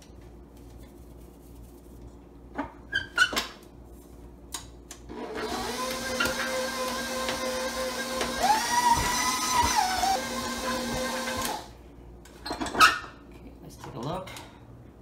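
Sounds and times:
stand mixer motor humming: 5.2 - 11.7.

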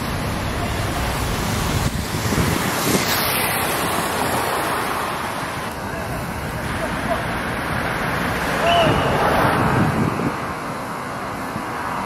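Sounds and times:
road traffic: 0.0 - 12.0
wind buffeting microphone: 1.0 - 4.6, 7.5 - 10.9.

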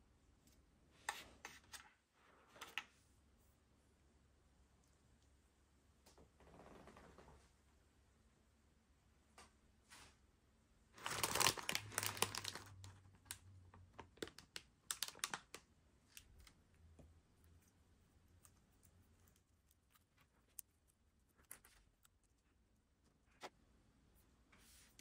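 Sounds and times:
plastic packaging crinkling: 11.0 - 16.6.

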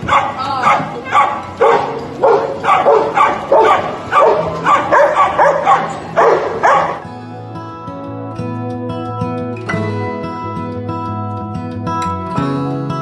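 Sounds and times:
dogs barking: 0.0 - 7.1.

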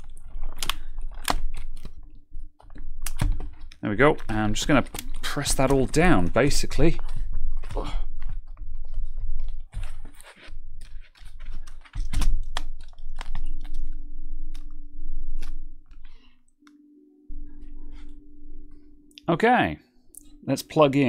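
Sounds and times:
plastic clips snapping: 0.4 - 2.0, 2.6 - 6.0, 10.8 - 14.8
steady low hum: 4.1 - 21.0.

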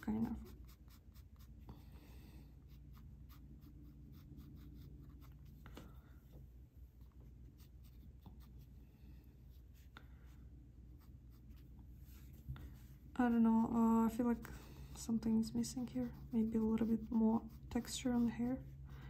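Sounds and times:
pencil strokes on paper: 0.0 - 6.0, 7.2 - 8.8, 13.7 - 19.0.

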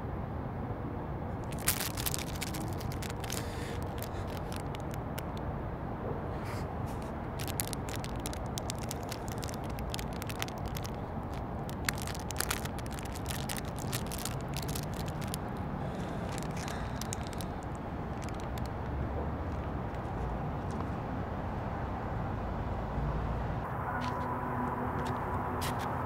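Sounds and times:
crackling and clicking: 1.4 - 5.4, 6.9 - 20.0.

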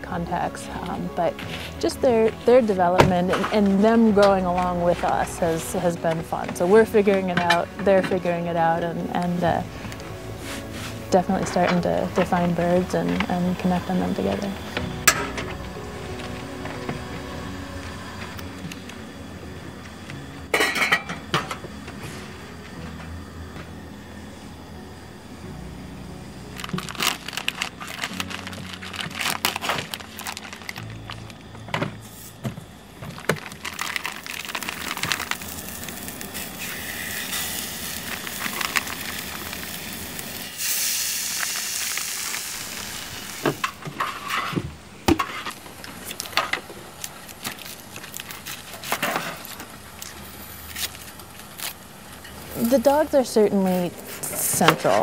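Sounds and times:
soft music: 0.0 - 40.7, 42.7 - 55.0
pots and utensils clinking: 15.0 - 15.6, 20.5 - 22.1
plastic packaging crinkling: 26.5 - 40.5, 45.2 - 53.1
sausages sizzling in a skillet: 33.5 - 44.3.

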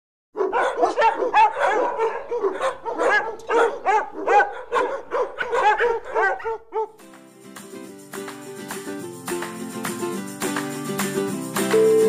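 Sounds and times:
dogs barking and yipping: 0.4 - 7.0.

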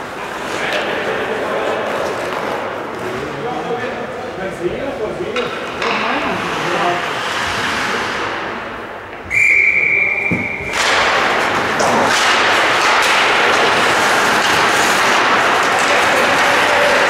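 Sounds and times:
referee's whistle: 9.3 - 10.8
rink clattering with knocks: 10.3 - 17.0.

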